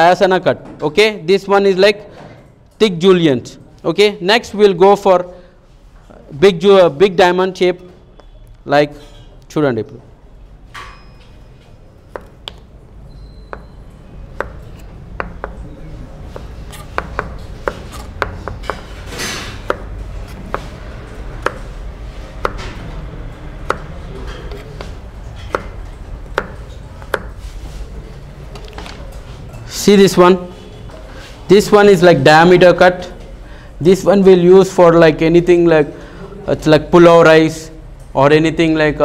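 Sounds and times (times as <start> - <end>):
knife chopping on cutting board: 12.1 - 12.6, 14.3 - 15.6, 16.3 - 20.8, 21.4 - 21.7, 22.4 - 22.8, 23.6 - 24.9, 25.5 - 27.4.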